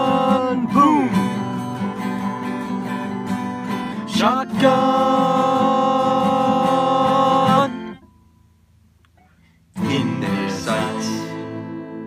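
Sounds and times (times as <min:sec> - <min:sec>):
theme song with guitar: 0:00.0 - 0:08.0, 0:09.8 - 0:12.0.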